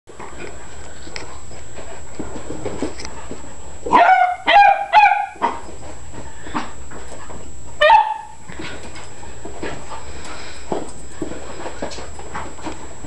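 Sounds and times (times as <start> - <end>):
dog barking: 3.9 - 5.6, 7.8 - 8.4.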